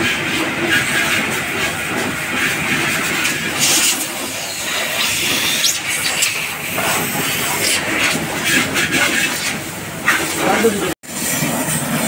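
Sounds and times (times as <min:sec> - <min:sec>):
compressed air hissing: 0:03.5 - 0:10.4.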